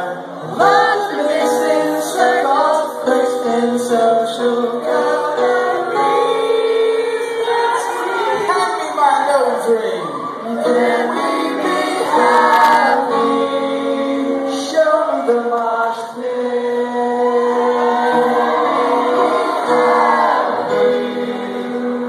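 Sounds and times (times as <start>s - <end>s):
piano: 0.0s - 22.0s
voices singing held notes: 0.3s - 8.9s, 9.9s - 22.0s.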